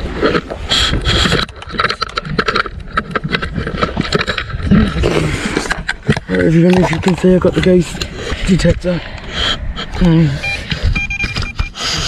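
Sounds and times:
wind on microphone: 0:00.0 - 0:12.0
microphone handling noise: 0:09.7 - 0:12.0.

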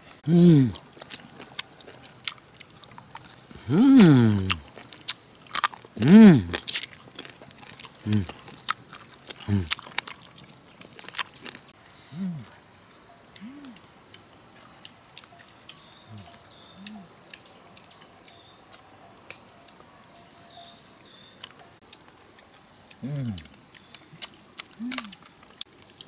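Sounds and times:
insects droning: 0:00.0 - 0:26.0
short low grunts: 0:00.2 - 0:00.8, 0:03.6 - 0:04.6, 0:06.0 - 0:06.6, 0:08.0 - 0:08.4, 0:09.4 - 0:09.8, 0:23.0 - 0:23.5.

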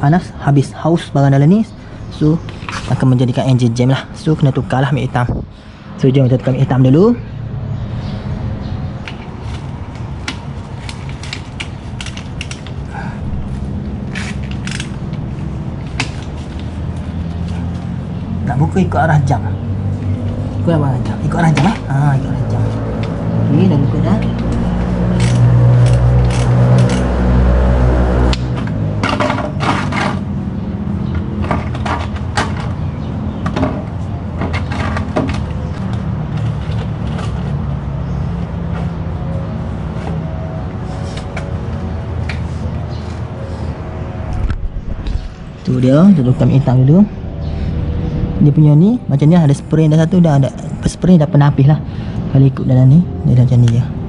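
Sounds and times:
steady low hum: 0:33.6 - 0:54.0.

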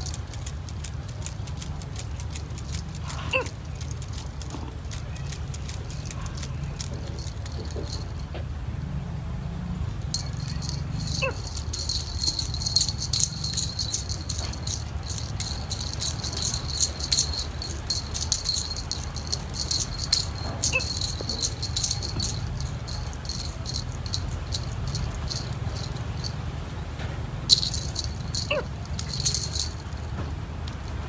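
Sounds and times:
rattle toy jingling: 0:00.0 - 0:08.3, 0:10.1 - 0:26.6, 0:27.5 - 0:31.0.

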